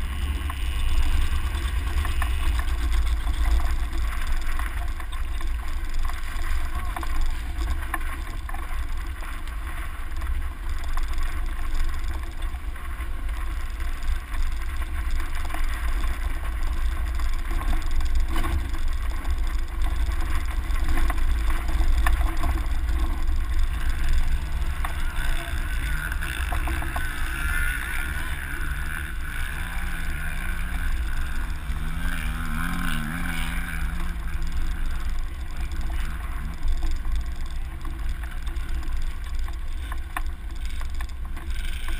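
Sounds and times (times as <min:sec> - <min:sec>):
engine and tyre noise: 0:00.0 - 0:41.9
low wavering engine hum: 0:00.0 - 0:41.9.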